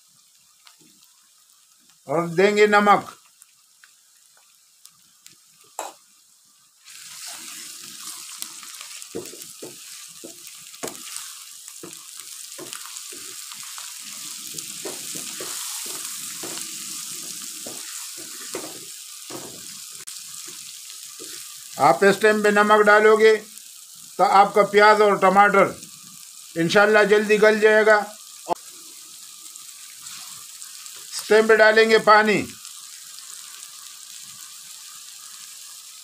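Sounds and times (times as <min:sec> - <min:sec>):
vegetables sizzling in a frying pan: 0:00.0 - 0:36.0
wooden spatula scraping a pan: 0:06.9 - 0:19.7, 0:21.2 - 0:21.6, 0:30.0 - 0:30.4.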